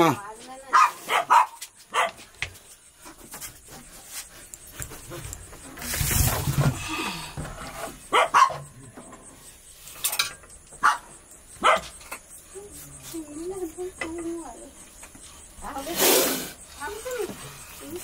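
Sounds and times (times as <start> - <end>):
dog barking: 0.7 - 2.3, 8.0 - 8.7, 10.8 - 12.0.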